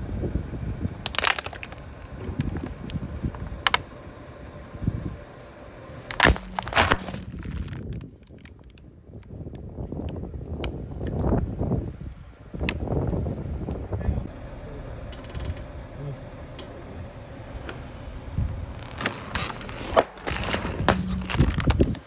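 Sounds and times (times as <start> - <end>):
car rolling rumble: 0.0 - 22.0
plastic bottles crushed popping: 1.0 - 1.8, 6.1 - 8.7, 18.8 - 22.0.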